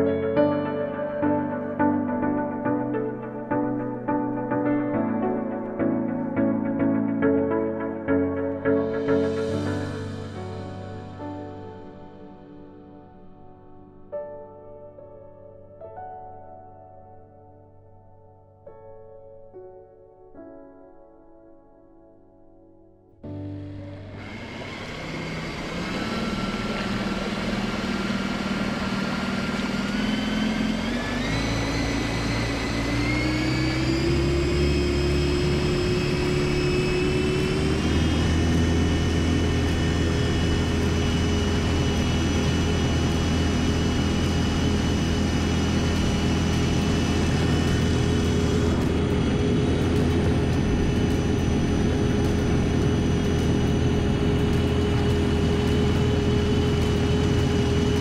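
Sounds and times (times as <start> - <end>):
electric motor whining: 23.3 - 58.0.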